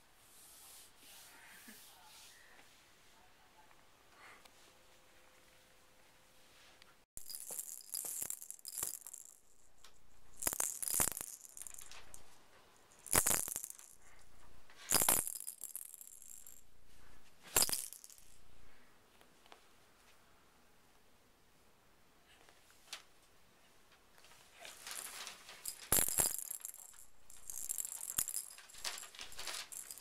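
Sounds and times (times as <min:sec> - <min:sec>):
plastic toy rattle shaken: 0:07.2 - 0:12.3, 0:12.9 - 0:14.2, 0:14.8 - 0:16.6, 0:17.5 - 0:18.4, 0:24.7 - 0:30.0.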